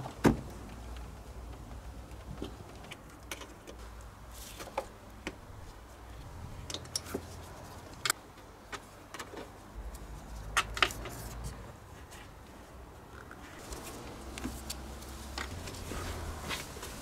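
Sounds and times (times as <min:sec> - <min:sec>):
car parts clicking and tapping: 0:13.2 - 0:15.8.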